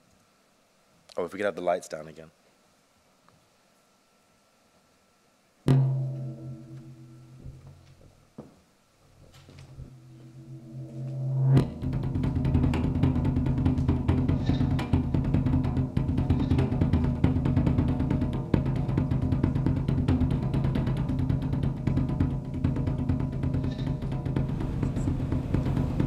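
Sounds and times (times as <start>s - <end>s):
dense drumming: 5.7s - 7.8s, 9.7s - 26.0s
low held tone: 5.7s - 7.8s, 9.5s - 15.2s
steady low bass: 9.7s - 20.6s.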